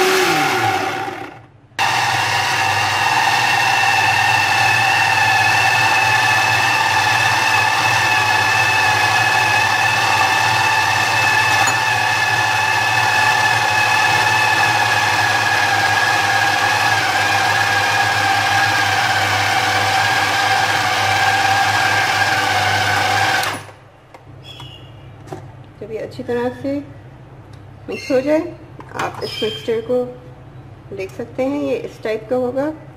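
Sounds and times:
electric food chopper motor whining: 0.0 - 23.7.

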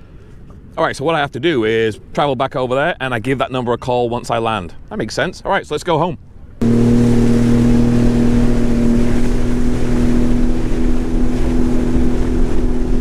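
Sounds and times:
wind and water rushing: 6.2 - 13.0
jet ski engine running: 6.3 - 13.0.

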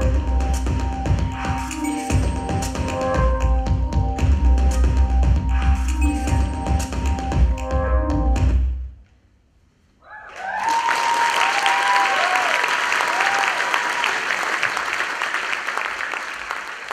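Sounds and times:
dance music: 0.0 - 8.8
high whoops of cheering: 10.0 - 14.4
audience applause: 10.3 - 16.9.

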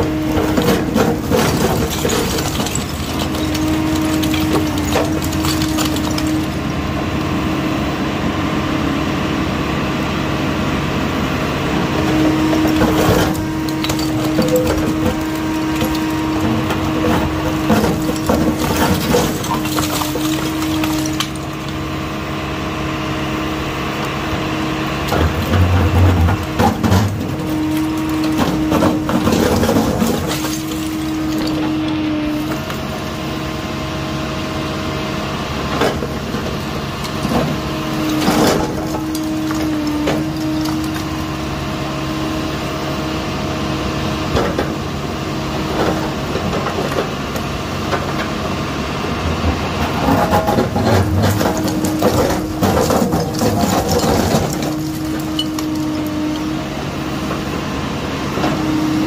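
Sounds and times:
hydraulic whine: 0.0 - 44.6, 48.4 - 59.0
excavator engine running: 0.0 - 59.0
bricks knocking and clattering: 0.2 - 6.7, 12.6 - 21.8, 25.1 - 32.8, 50.0 - 56.4.

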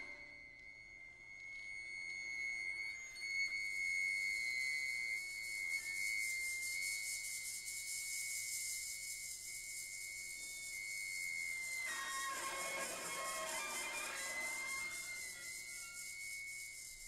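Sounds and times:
maraca rustling: 11.9 - 16.0.

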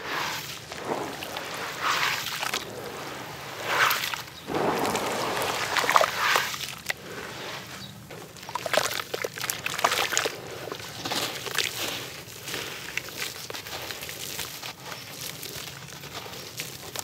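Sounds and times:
hands squelching in muddy water: 0.1 - 17.0.

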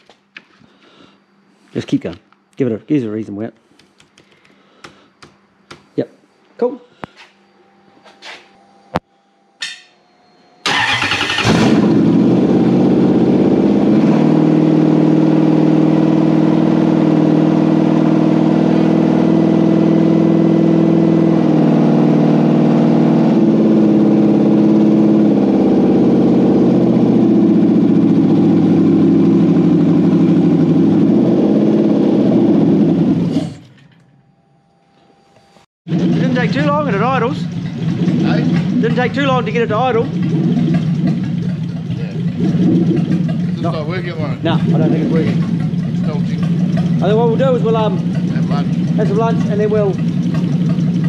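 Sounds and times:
car engine starting and idling: 10.6 - 34.0, 35.9 - 51.0.

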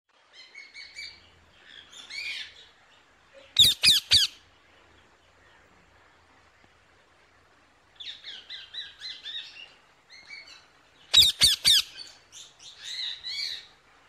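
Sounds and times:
lorikeet chirps: 3.4 - 4.4, 8.0 - 13.7.

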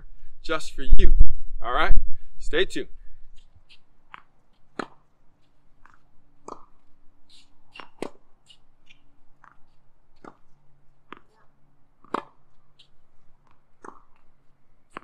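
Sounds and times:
faint steady hum: 0.0 - 15.0
tennis ball struck by racket: 3.4 - 5.1, 5.8 - 15.0
ball bouncing on hard court: 4.1 - 5.1, 5.8 - 8.2, 8.9 - 10.5, 11.1 - 14.3.

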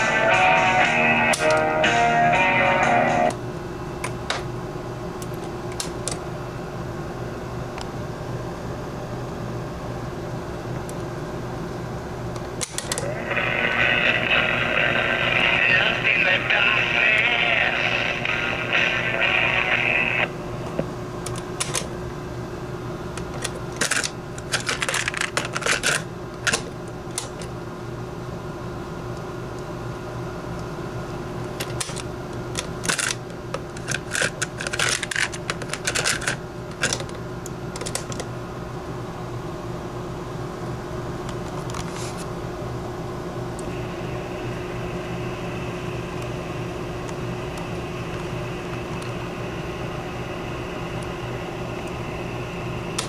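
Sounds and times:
electrical hum and hiss: 0.0 - 53.0
radio sound: 13.0 - 20.4
sharp clicks and crackles: 31.6 - 37.1.

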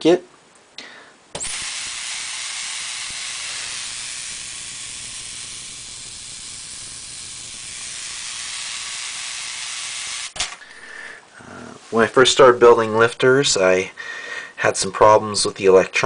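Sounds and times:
corona discharge hissing: 1.4 - 10.6.

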